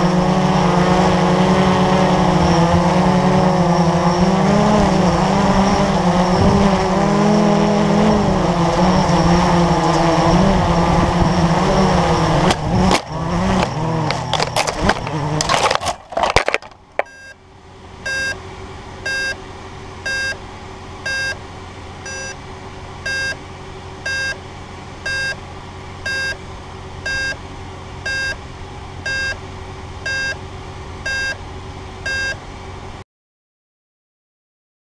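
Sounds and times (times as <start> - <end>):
drone beeping: 0.0 - 15.6, 17.0 - 17.4, 18.0 - 18.4, 19.0 - 19.4, 20.0 - 20.4, 21.0 - 21.4, 22.0 - 22.4, 23.0 - 23.4, 24.0 - 24.4, 25.0 - 25.4, 26.0 - 26.4, 27.0 - 27.4, 28.0 - 28.4, 29.0 - 29.4, 30.0 - 30.4, 31.0 - 31.4, 32.0 - 32.4
low electrical hum: 0.0 - 33.0.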